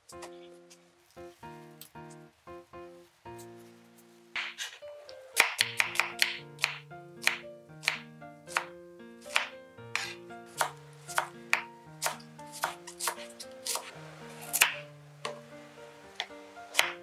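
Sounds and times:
knife cutting on wooden board: 9.3 - 14.8.

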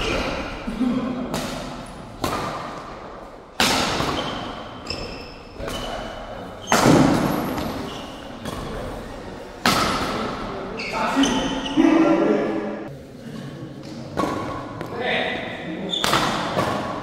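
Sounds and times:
rackets hitting shuttlecock: 1.3 - 8.8, 9.6 - 10.5, 13.9 - 14.9, 15.9 - 17.0.

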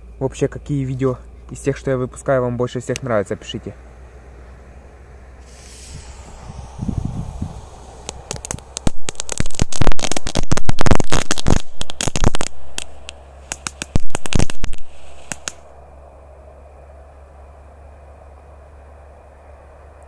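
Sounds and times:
firework crackling pops: 5.4 - 15.7.

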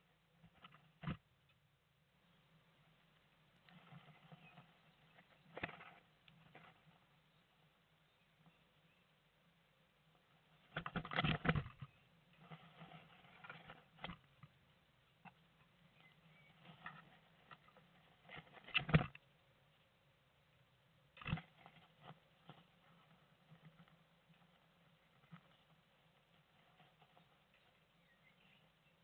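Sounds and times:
rustling of nest material: 10.1 - 19.9, 21.2 - 29.0.

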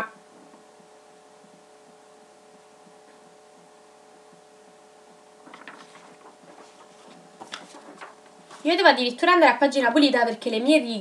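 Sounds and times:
faint steady hum: 0.0 - 11.0
paper rustling: 5.4 - 9.0.

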